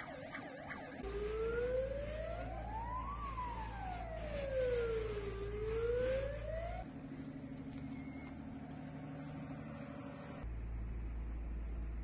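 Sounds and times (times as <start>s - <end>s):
fast warbling siren: 0.0s - 6.9s
siren wailing: 0.0s - 6.9s.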